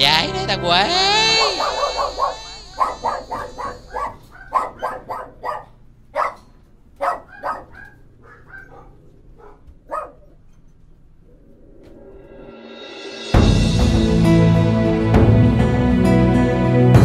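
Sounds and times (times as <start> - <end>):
dog barking: 1.3 - 10.4.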